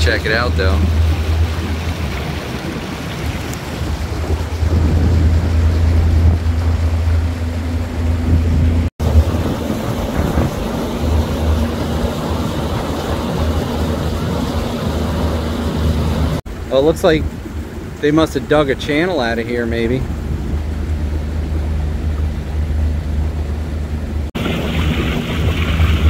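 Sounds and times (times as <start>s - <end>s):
wind on microphone: 0.0s - 18.1s
boat motor running: 0.0s - 26.0s
water rushing past hull: 0.0s - 26.0s.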